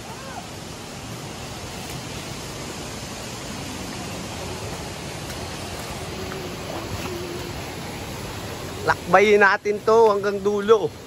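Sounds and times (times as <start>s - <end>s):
river water running over rocks: 0.0s - 11.0s.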